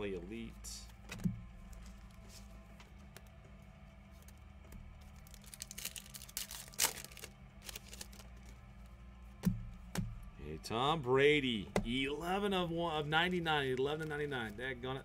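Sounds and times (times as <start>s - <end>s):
low steady hum: 0.0s - 15.0s
cards and foil wrappers rustling: 4.1s - 8.7s.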